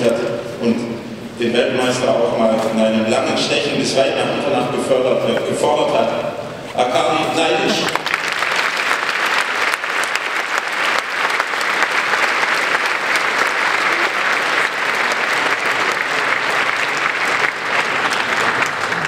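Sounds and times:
audience applauding: 7.8s - 19.0s.

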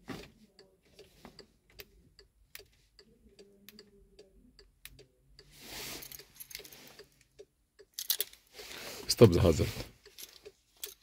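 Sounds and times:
hazard lights ticking: 0.4s - 5.5s, 7.0s - 8.0s.

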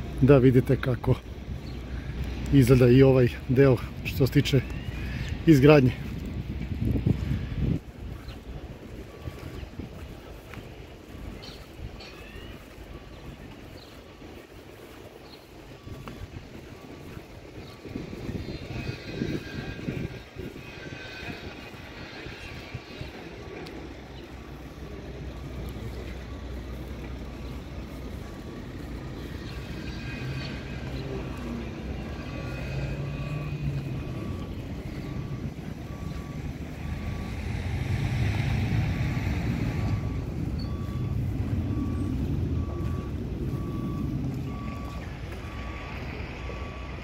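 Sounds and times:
diesel machinery rumble: 0.0s - 47.0s
reversing alarm beeping: 0.0s - 47.0s.

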